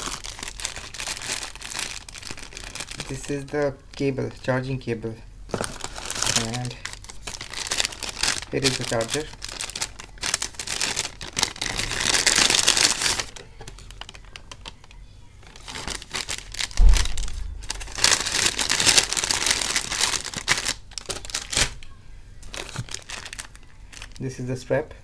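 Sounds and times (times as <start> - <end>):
plastic bags crinkling: 0.0 - 4.2, 5.5 - 21.8, 22.4 - 24.4
dull thump: 16.8 - 17.8.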